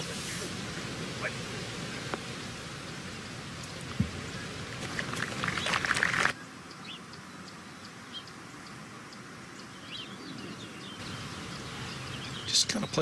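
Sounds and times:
hushed outdoor ambience: 0.0 - 13.0
bird chirps: 4.3 - 13.0.

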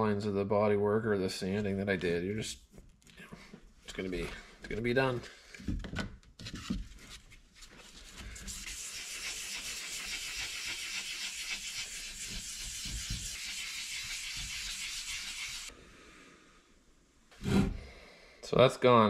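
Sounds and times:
sandpaper scratching by hand: 8.4 - 15.7.

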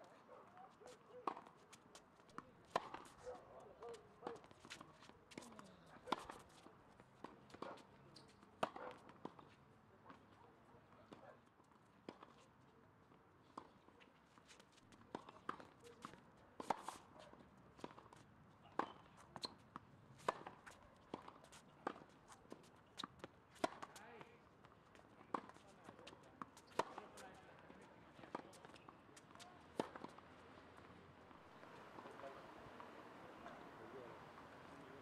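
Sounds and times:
tennis balls bouncing on court: 0.8 - 10.2, 14.8 - 17.0, 17.7 - 35.0
tennis balls struck by rackets: 2.4 - 6.6, 17.8 - 35.0.

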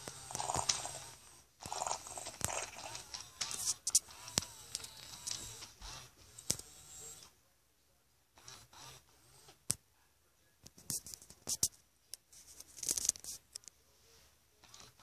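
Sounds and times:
crackly bursts: 0.0 - 6.7.

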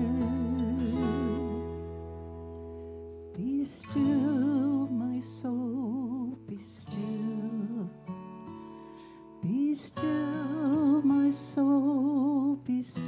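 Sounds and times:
woman singing a hymn: 0.0 - 1.8, 3.4 - 8.0, 9.4 - 13.0.

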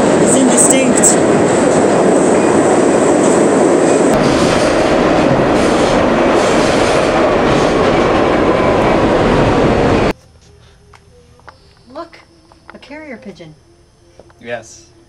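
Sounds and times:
subway train rumble and clatter: 0.0 - 10.2.

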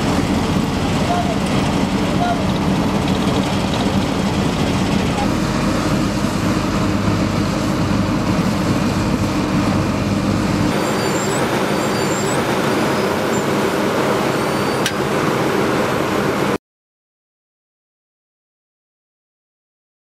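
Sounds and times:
diesel engines running: 0.0 - 16.6
machinery hum: 0.0 - 16.6.

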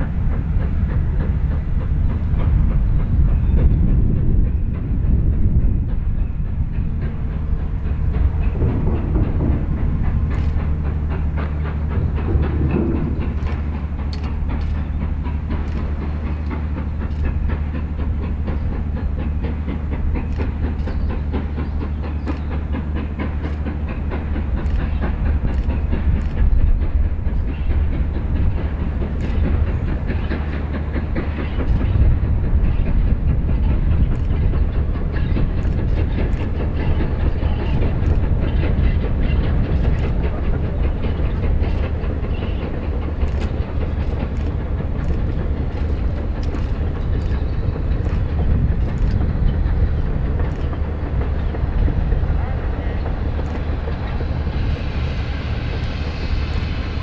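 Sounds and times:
steam locomotive exhaust beats: 0.0 - 57.0
train rumble: 0.0 - 57.0.

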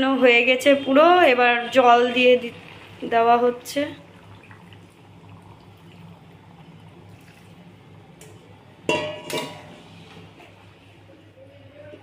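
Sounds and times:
water pouring into a wok: 2.3 - 7.8
metal clanking against wok: 8.8 - 9.8.

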